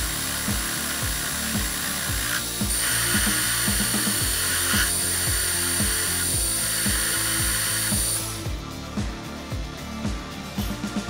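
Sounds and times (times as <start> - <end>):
metal lathe turning metal bar: 0.0 - 8.5
background music with steady beat: 0.0 - 11.0.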